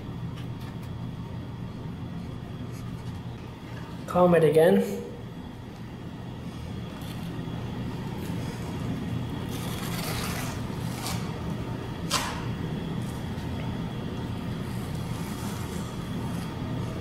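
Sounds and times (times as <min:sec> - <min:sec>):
steady low hum: 0:00.0 - 0:17.0
trowel scraping mortar: 0:09.5 - 0:11.4.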